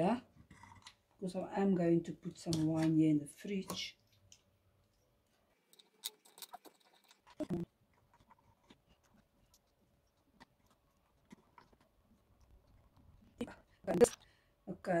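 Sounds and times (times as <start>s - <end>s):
clicks of miniatures handled: 5.7s - 8.8s.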